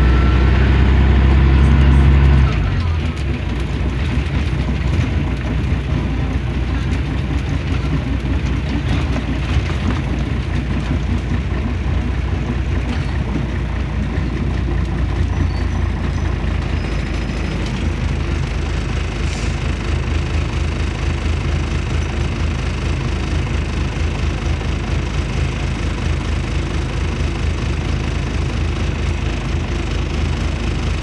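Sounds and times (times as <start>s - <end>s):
bus diesel engine drone: 0.0s - 31.0s
road noise: 0.0s - 31.0s.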